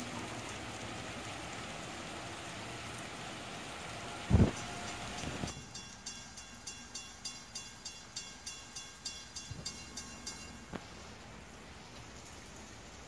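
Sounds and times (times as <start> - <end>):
light rain: 0.0 - 13.0
crossing bell ringing: 4.6 - 10.8.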